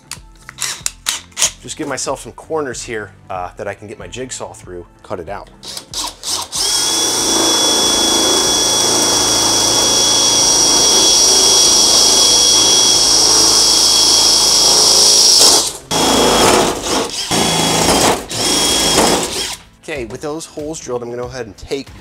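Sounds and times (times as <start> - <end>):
cordless drill whining: 5.6 - 19.7.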